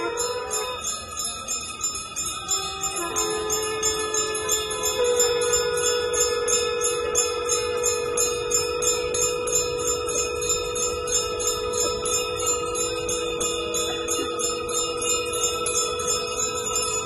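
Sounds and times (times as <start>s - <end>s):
conch shell blowing long note: 0.0s - 17.0s
temple bells ringing rapidly: 0.0s - 17.0s.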